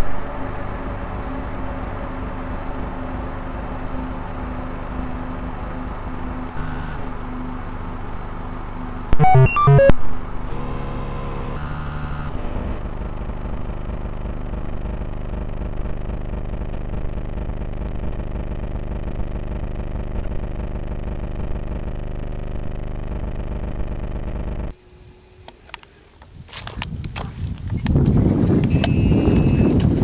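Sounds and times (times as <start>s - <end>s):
steady buzzing noise: 9.1s - 25.5s
stepped electronic beeps: 9.2s - 10.0s.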